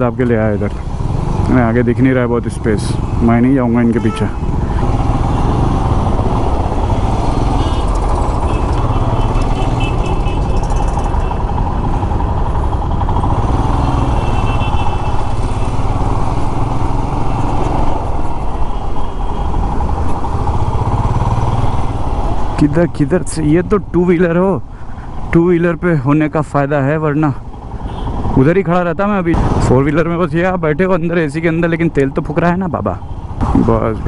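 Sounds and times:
surrounding traffic: 0.0s - 34.0s
motorcycle engine running: 4.4s - 22.6s.

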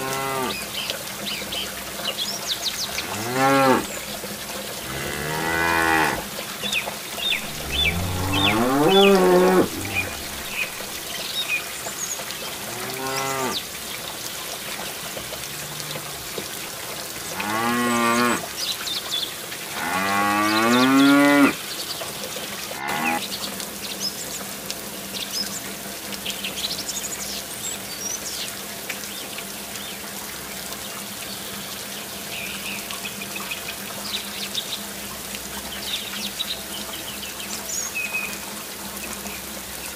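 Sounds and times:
water trickling into pool: 0.0s - 39.9s
cattle mooing: 4.8s - 6.2s, 7.4s - 10.8s, 12.7s - 13.6s, 22.8s - 23.2s.

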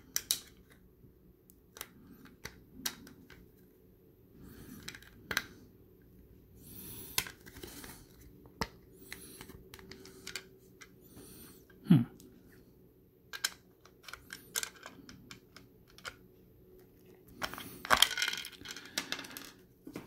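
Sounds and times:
hard plastic pieces clicking: 0.1s - 0.8s, 13.3s - 16.2s, 17.4s - 19.6s.

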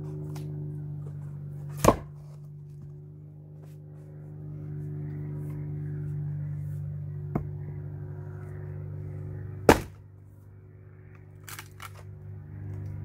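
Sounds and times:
steady low hum: 0.0s - 13.0s
log knocking on chopping block: 1.8s - 2.1s, 9.7s - 10.0s.

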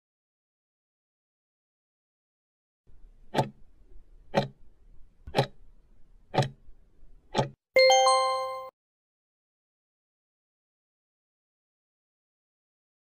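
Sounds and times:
clock ticking: 3.3s - 3.6s, 4.3s - 4.6s, 5.3s - 5.6s, 6.3s - 6.6s, 7.3s - 7.6s.

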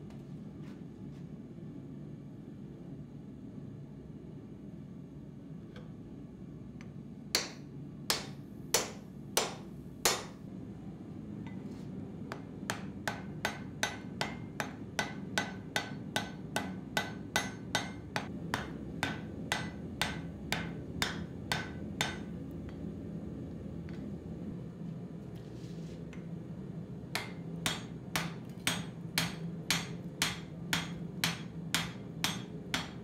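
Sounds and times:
hammer striking steel on anvil: 7.4s - 10.4s, 12.3s - 22.8s, 27.1s - 33.0s.

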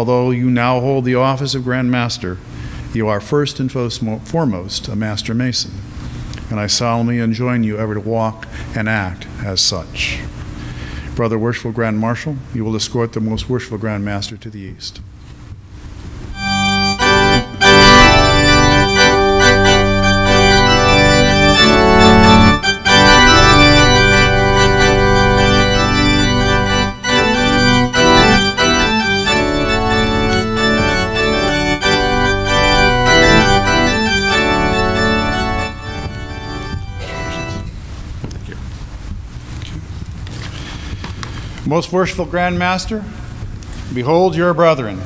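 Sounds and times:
organ chords: 16.3s - 39.4s.

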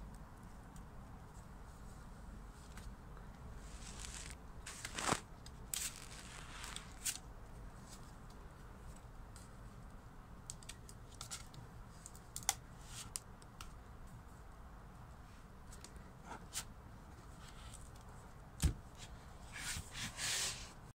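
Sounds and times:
cardboard page swish: 3.6s - 7.2s.

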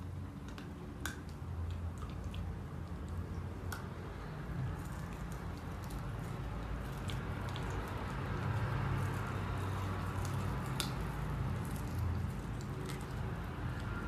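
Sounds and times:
teeth clicking on a toothbrush: 4.7s - 14.0s.

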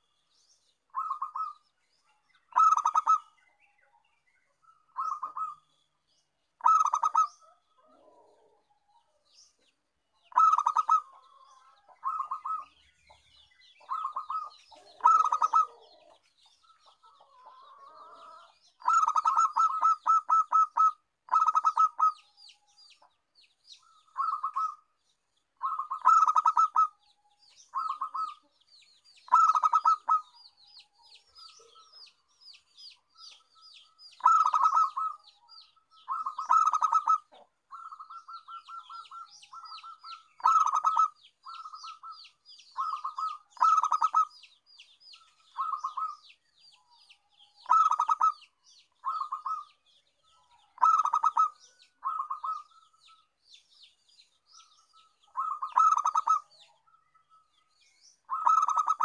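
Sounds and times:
faint high bird chirps: 0.0s - 59.0s
dove cooing: 0.9s - 1.6s, 2.5s - 3.4s, 4.7s - 5.7s, 6.6s - 9.1s, 10.2s - 12.8s, 13.8s - 22.2s, 23.8s - 24.8s, 25.6s - 27.0s, 27.6s - 28.5s, 29.3s - 30.4s, 34.2s - 44.5s, 45.2s - 46.3s, 47.6s - 49.8s, 50.4s - 53.2s, 55.2s - 56.8s, 58.3s - 59.0s.

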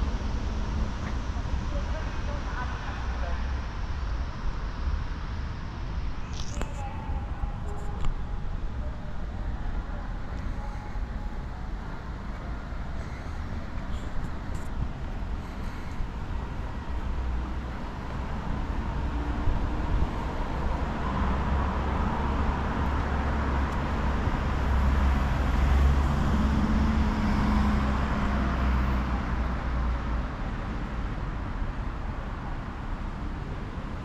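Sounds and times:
rumble of traffic: 0.0s - 34.0s.

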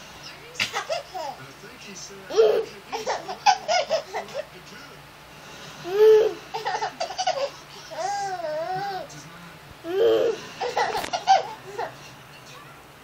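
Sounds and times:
child laughing: 5.8s - 9.0s.

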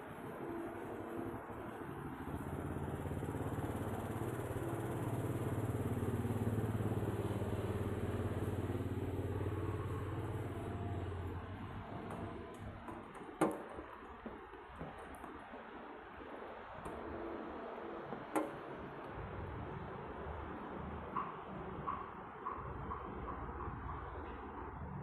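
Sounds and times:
vehicle engine passing by: 2.3s - 12.5s.

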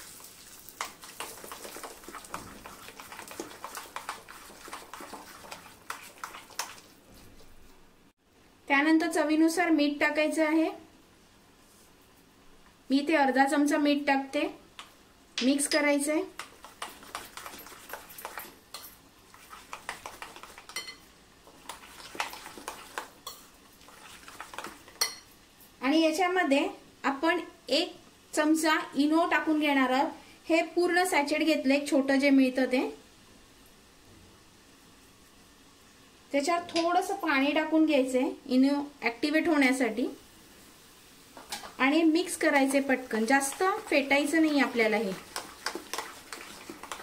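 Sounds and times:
spoon scraping bowl: 0.7s - 7.6s, 16.4s - 25.3s, 43.1s - 47.0s
spoon clinking on bowl: 20.7s - 21.0s.

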